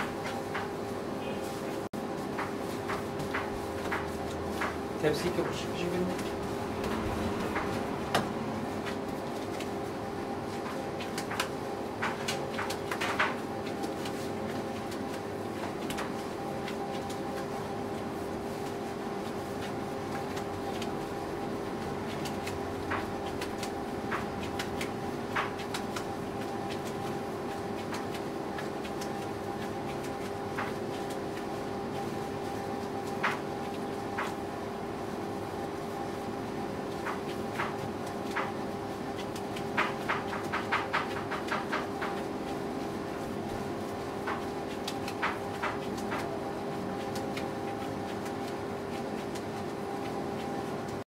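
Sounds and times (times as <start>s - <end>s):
mechanical hum: 0.0s - 51.0s
sharp clicks and knocks: 2.3s - 9.7s.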